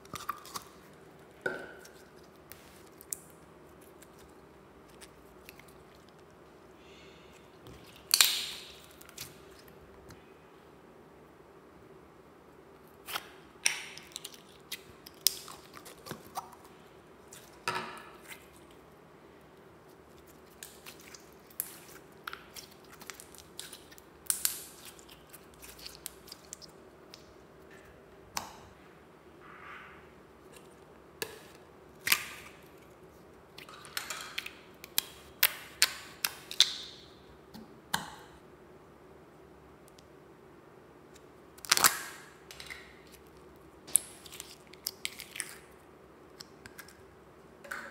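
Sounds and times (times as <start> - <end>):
slime squelching and popping: 7.6 - 9.8, 20.2 - 27.4.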